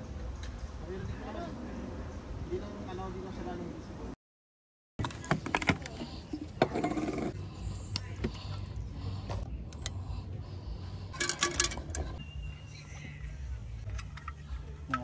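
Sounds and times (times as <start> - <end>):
metal hooks and cookware clicking: 11.1 - 12.2.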